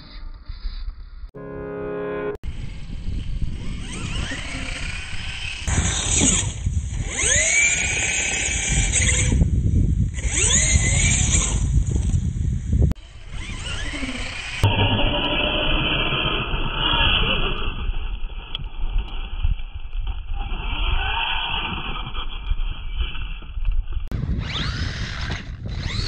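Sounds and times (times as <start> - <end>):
rc truck electric motor whining: 2.5 - 18.6, 20.4 - 23.4, 24.2 - 26.0.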